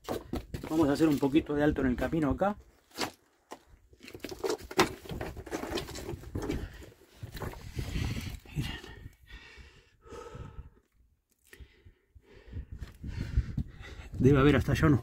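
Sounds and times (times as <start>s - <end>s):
scuffing over loose rock: 0.0s - 1.5s
stones clicking underfoot: 2.9s - 8.5s
person panting: 7.7s - 10.8s, 11.5s - 14.2s.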